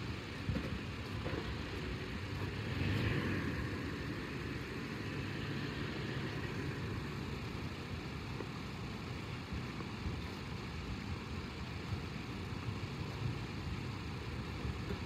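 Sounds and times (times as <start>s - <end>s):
vehicle engine running: 0.0s - 9.9s
tyres rolling on asphalt: 0.0s - 12.0s, 12.6s - 15.0s.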